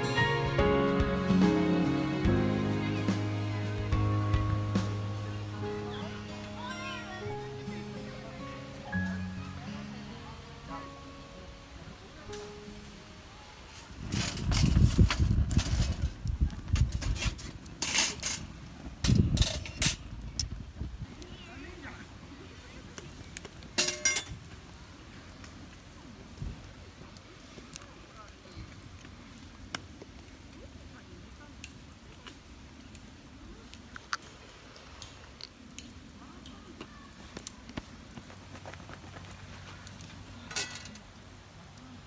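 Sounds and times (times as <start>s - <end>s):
fire crackling and popping: 0.0s - 42.0s
low uneven rumble: 0.0s - 42.0s.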